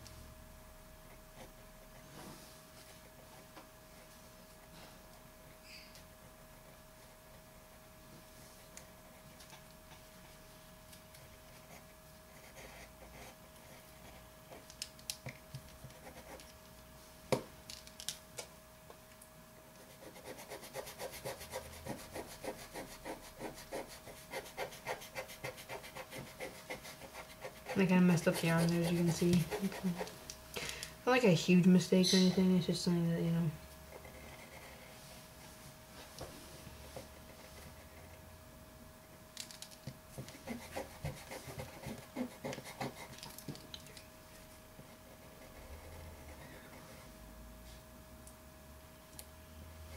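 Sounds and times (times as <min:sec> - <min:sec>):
drawing tool scratching on paper: 0:19.8 - 0:30.1, 0:40.2 - 0:43.2.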